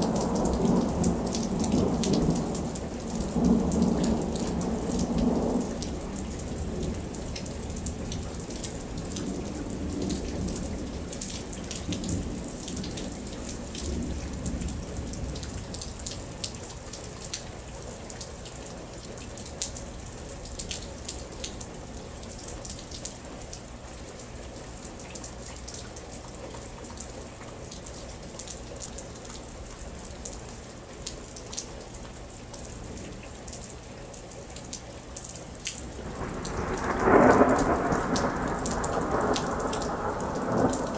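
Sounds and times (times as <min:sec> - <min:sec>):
low thunder rumble: 0:00.0 - 0:16.7, 0:35.8 - 0:40.9
rain falling steadily: 0:00.0 - 0:40.9.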